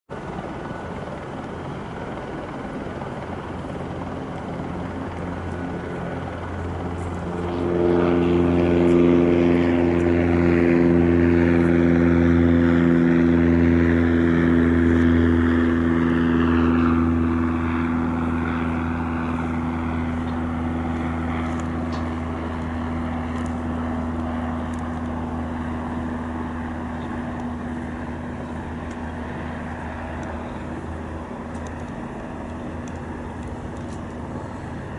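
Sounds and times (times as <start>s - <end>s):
propeller plane engine drone: 0.1s - 34.9s.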